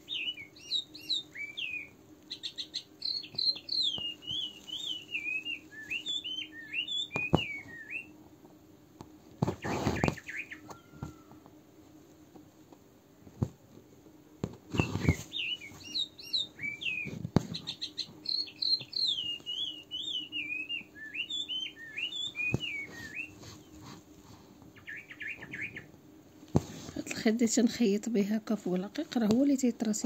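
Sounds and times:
songbird warbling: 0.0 - 8.1, 9.6 - 11.4, 14.8 - 23.4, 24.8 - 25.9.

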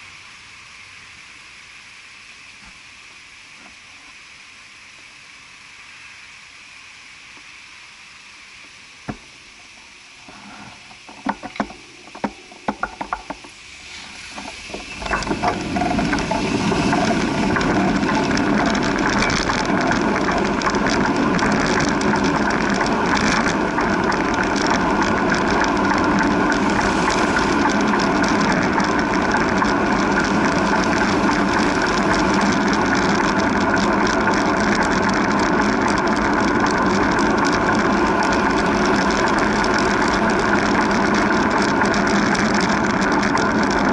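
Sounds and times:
bicycle rolling rushing noise: 10.2 - 43.9
bicycle mechanical clicks: 14.3 - 43.9.

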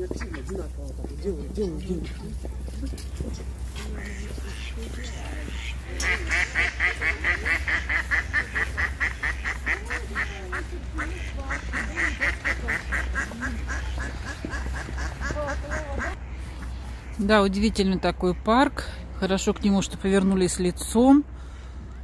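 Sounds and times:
ducks quacking: 0.0 - 0.9, 1.6 - 17.3.

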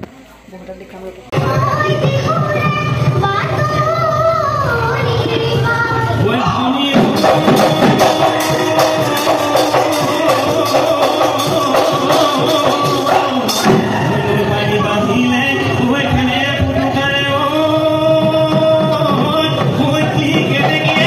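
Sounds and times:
drums beating: 1.3 - 21.0
person singing melody: 6.2 - 21.0.

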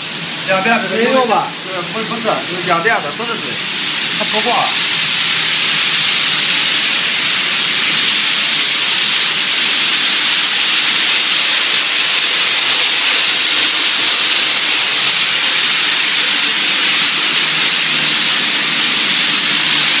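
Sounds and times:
air handling running: 0.0 - 5.8
spray guns hissing: 0.0 - 20.0.

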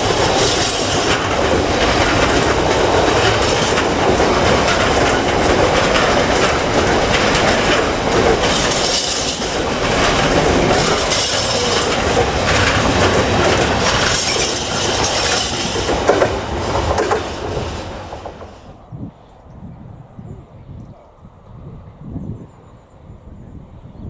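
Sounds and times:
train wheels clattering on rails: 0.0 - 18.9.

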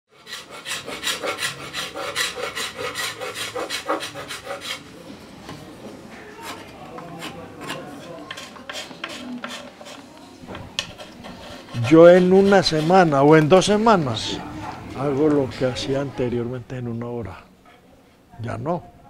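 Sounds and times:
hand tool rasping on wood: 0.1 - 4.8, 7.2 - 10.1, 10.8 - 14.8.

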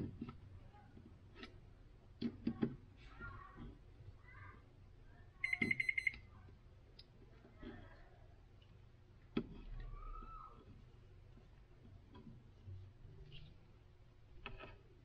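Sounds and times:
high electronic beeps: 5.4 - 6.2.

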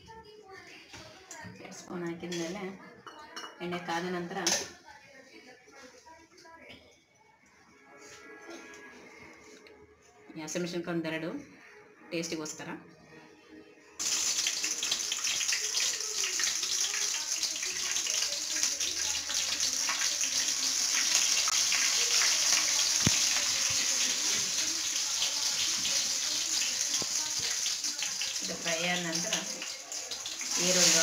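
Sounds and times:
chillies sizzling in hot oil: 14.0 - 31.0
oil crackling: 14.0 - 31.0.

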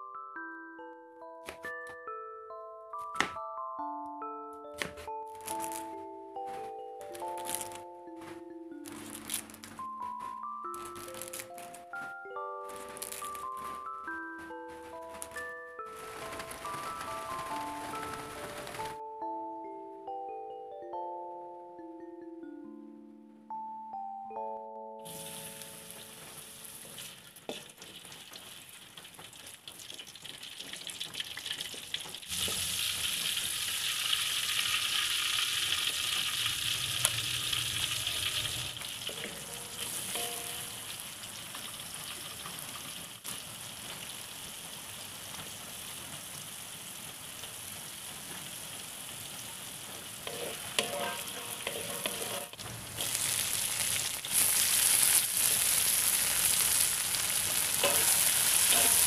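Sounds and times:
food sizzling in hot oil: 25.1 - 59.0
spatula scraping a wok: 50.3 - 55.9, 57.5 - 59.0.

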